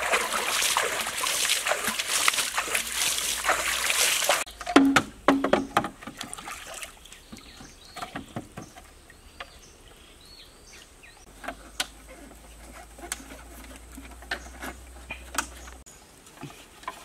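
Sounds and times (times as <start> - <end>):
bamboo poles knocking: 4.5 - 6.4.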